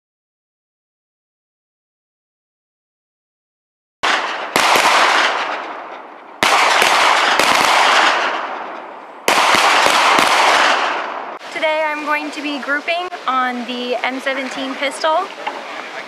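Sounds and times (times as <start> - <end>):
pistol shots with echo: 4.0 - 11.4.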